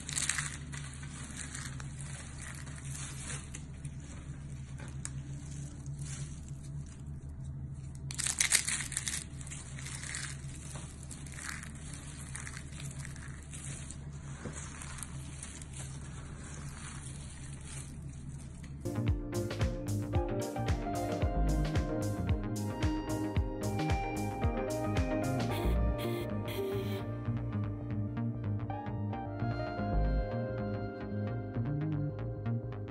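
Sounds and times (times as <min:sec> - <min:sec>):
soap flakes crackling in hands: 0:00.0 - 0:18.9.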